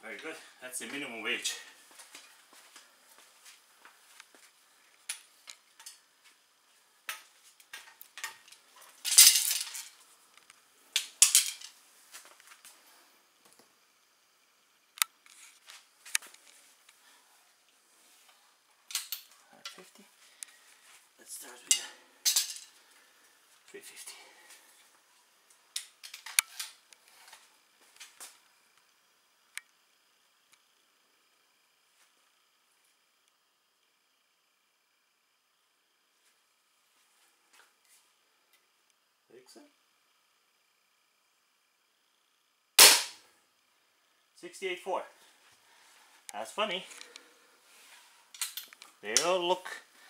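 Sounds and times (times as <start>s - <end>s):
crossbow gear clinking and rattling: 7.7s - 10.0s.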